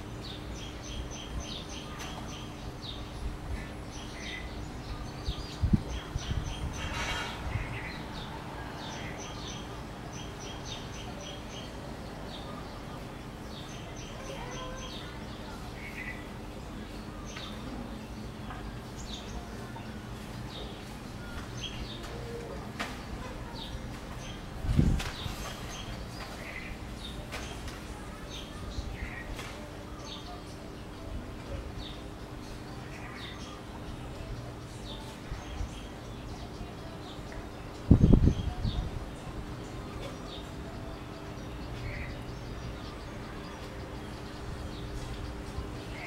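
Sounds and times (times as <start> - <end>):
small birds chirping: 0.0 - 46.0.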